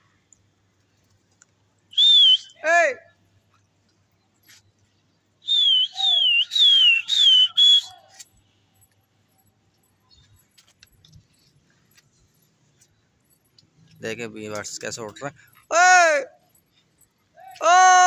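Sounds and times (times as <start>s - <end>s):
person whistling shrilly: 1.9s - 2.6s, 5.4s - 8.2s.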